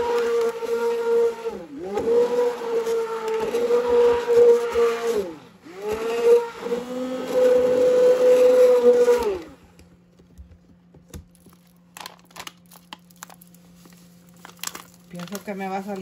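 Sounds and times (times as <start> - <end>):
immersion blender whirring: 0.0 - 9.9
plastic packet crinkling: 11.2 - 16.0.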